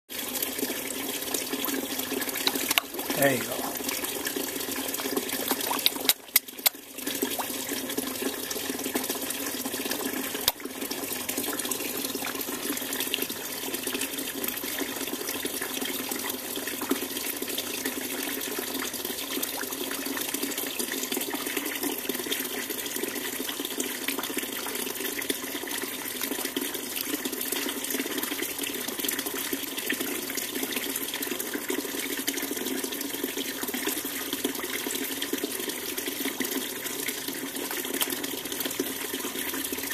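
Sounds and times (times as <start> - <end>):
running splashing water: 0.1 - 19.8
sharp clicks: 5.8 - 6.8.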